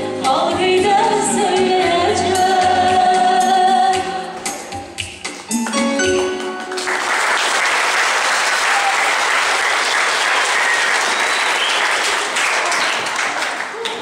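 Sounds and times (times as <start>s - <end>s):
song held final notes: 5.5s - 7.4s
audience applause: 5.6s - 14.0s.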